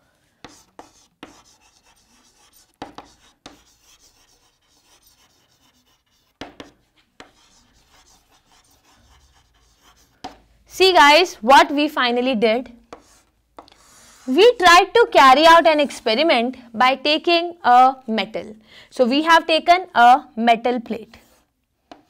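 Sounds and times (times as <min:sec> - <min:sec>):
chalk scratching on chalkboard: 0:00.4 - 0:10.4, 0:12.9 - 0:14.7, 0:21.1 - 0:22.0
chalk tapping on board: 0:00.4 - 0:10.5, 0:12.9 - 0:14.3, 0:21.2 - 0:22.0.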